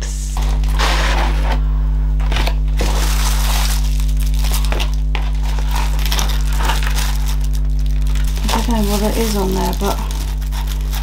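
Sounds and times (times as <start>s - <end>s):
steady low hum: 0.0s - 11.0s
plastic bag crinkling: 2.4s - 11.0s.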